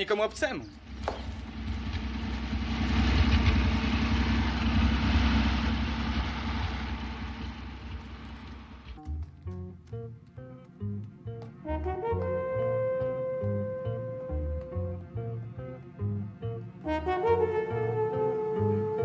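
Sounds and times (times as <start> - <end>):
truck engines running: 0.6 - 11.6
music with plucked notes: 9.0 - 19.0.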